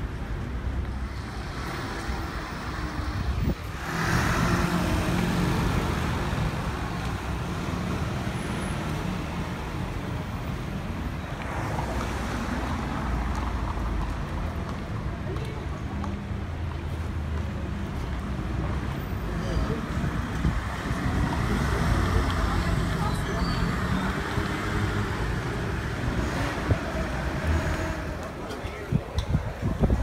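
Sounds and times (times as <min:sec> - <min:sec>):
street traffic rumble: 0:00.0 - 0:30.0.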